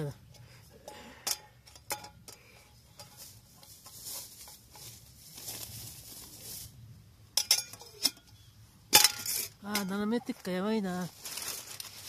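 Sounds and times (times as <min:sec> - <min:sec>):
camping gear clicks and knocks: 0:00.3 - 0:05.8, 0:07.3 - 0:10.4
soft rustling: 0:02.6 - 0:06.9, 0:10.9 - 0:12.0.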